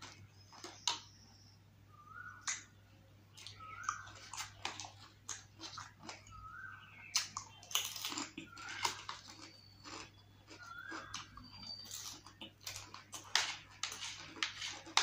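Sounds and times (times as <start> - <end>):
wet chewing: 3.4 - 15.0
crisp shells crunching: 7.6 - 15.0.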